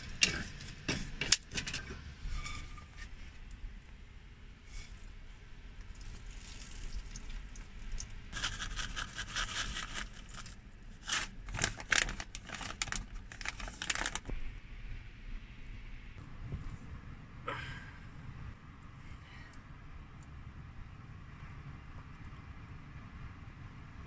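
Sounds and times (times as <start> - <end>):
plastic bag crinkling: 8.4 - 14.3.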